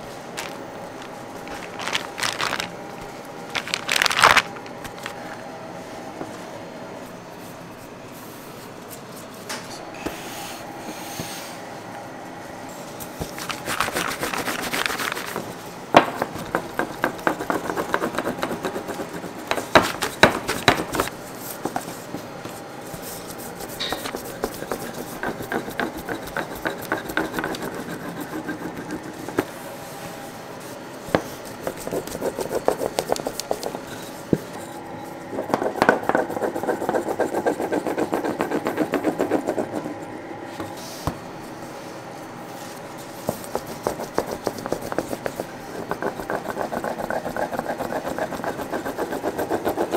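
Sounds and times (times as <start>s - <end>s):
hands rubbing and tapping dough: 31.1s - 34.6s.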